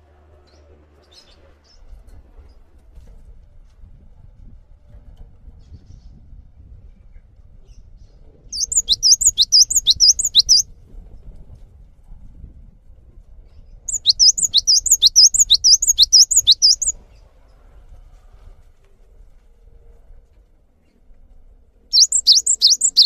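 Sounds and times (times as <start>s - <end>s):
bird singing rapid high notes: 8.6s - 10.6s, 13.9s - 16.9s, 22.0s - 23.0s.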